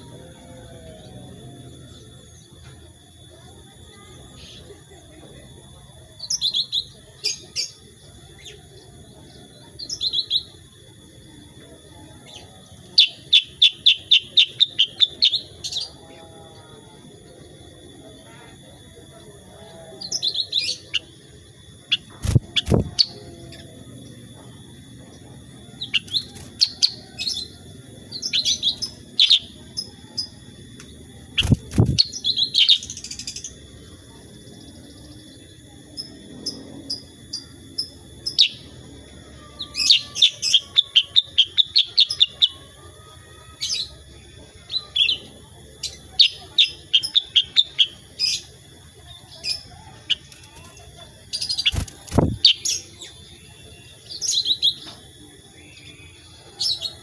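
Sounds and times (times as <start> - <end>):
bird chirping and trilling: 12.2 - 16.4, 20.0 - 24.2, 24.8 - 33.8, 34.6 - 57.0.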